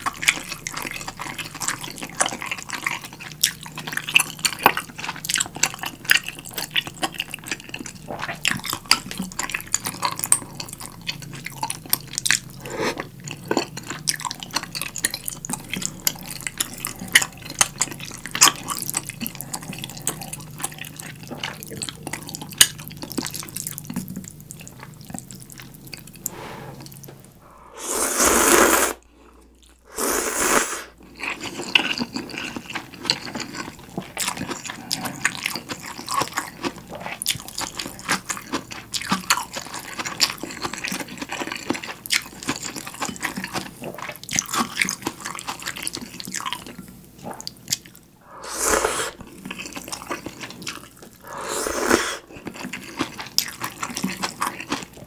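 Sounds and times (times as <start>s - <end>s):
wet chewing of noodles: 0.0s - 55.0s
loud slurps: 26.2s - 29.0s, 29.9s - 31.0s, 48.2s - 49.3s, 51.2s - 52.3s.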